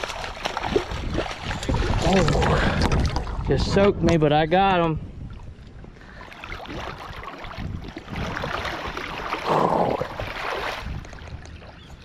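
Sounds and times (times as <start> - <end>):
river water splashing: 0.0 - 3.4, 6.0 - 12.0.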